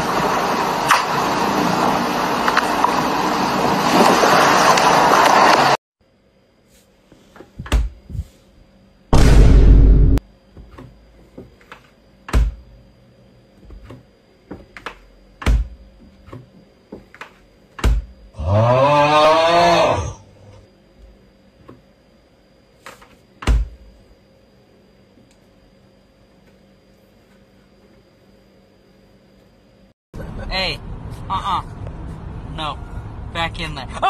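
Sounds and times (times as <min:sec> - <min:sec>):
long wavering vocal cry: 0:18.4 - 0:20.3.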